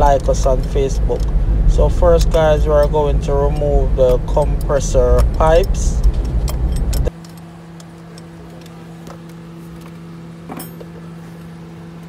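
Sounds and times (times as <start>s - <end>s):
low rumbling noise: 0.0s - 7.1s
steady low hum: 0.0s - 12.0s
metallic clicks of tools: 0.2s - 1.4s, 2.2s - 8.7s.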